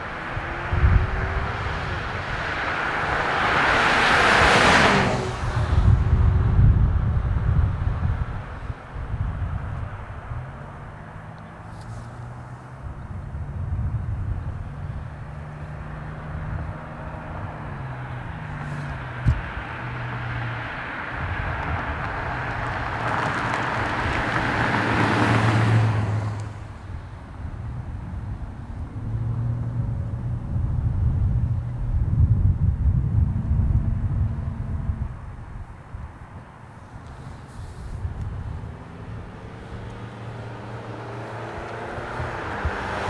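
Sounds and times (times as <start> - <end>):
car passing by: 0.0 - 6.8, 14.7 - 27.2, 36.7 - 43.0
heavy diesel truck engines droning: 0.0 - 43.0.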